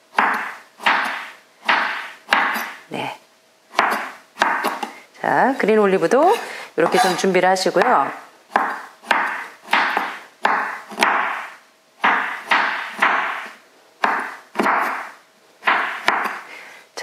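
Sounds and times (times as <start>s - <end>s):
knife tapping on wooden board: 8.5s - 11.4s, 14.0s - 15.0s.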